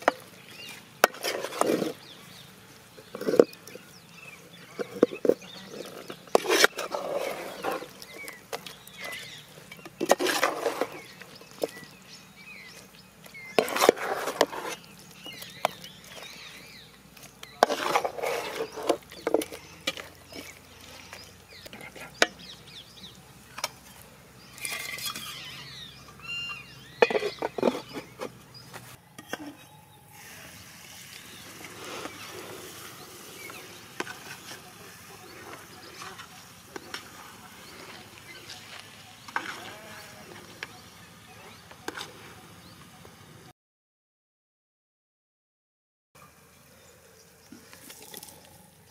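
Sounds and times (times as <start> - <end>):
metal ladle scraping a pan: 0.0 - 2.0, 4.7 - 12.0, 13.5 - 22.5, 24.5 - 25.9, 27.0 - 28.4, 29.2 - 40.7
chicken frying: 0.0 - 28.4, 30.1 - 42.6.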